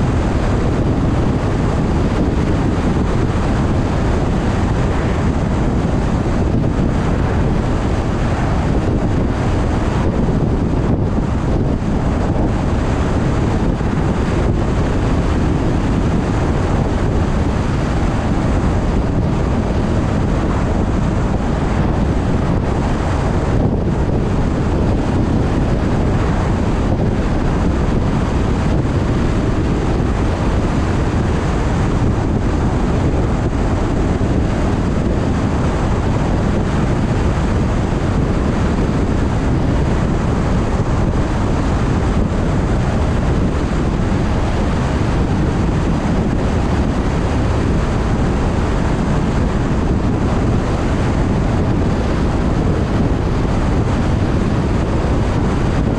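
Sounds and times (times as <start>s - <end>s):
wind and tyre noise: 0.0s - 55.9s
wind buffeting microphone: 0.0s - 55.9s.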